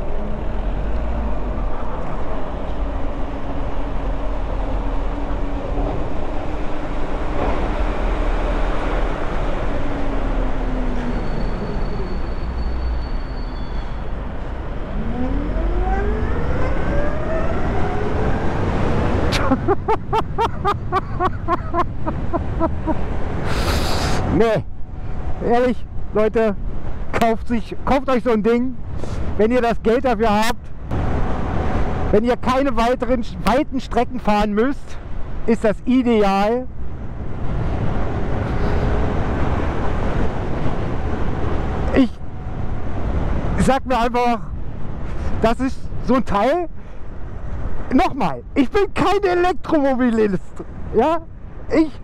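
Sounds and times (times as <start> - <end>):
tyre hiss on wet road: 23.4 - 24.3.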